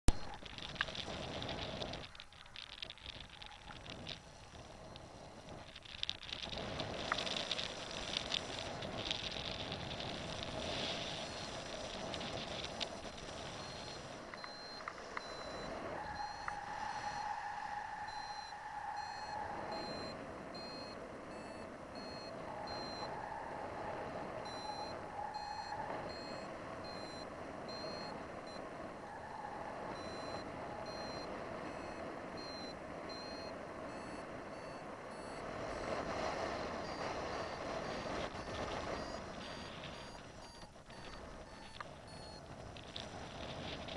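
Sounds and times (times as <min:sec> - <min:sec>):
short high-pitched beeps: 0:13.6 - 0:17.2, 0:24.5 - 0:28.6, 0:30.0 - 0:35.4, 0:36.8 - 0:42.4.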